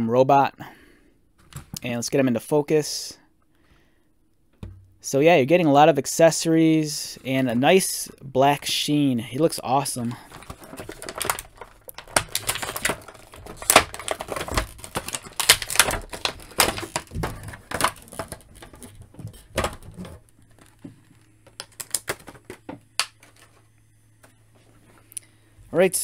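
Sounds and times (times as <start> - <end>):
plastic blister tray crackling: 9.8 - 23.6.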